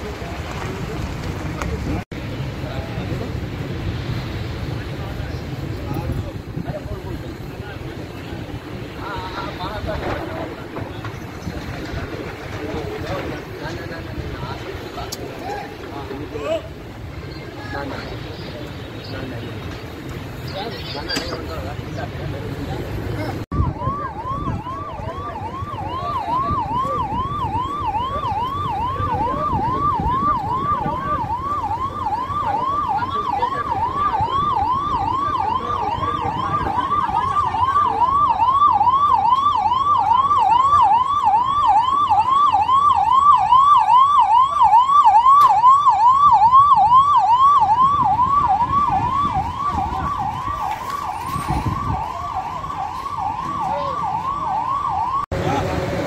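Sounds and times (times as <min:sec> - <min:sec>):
truck engine rumbling: 0:00.0 - 0:56.0
electronic siren yelping: 0:23.5 - 0:55.3.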